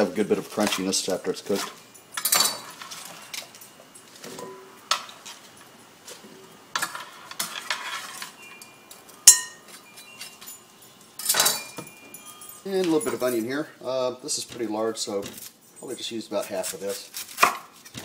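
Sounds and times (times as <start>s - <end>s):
leaves rustling: 0.0s - 18.0s.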